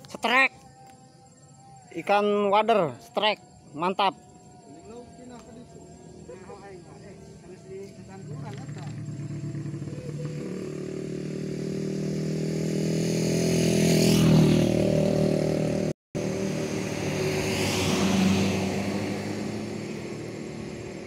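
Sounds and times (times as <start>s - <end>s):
vehicle engines running: 4.2s - 13.2s, 14.3s - 21.0s
vehicle passing: 5.8s - 21.0s.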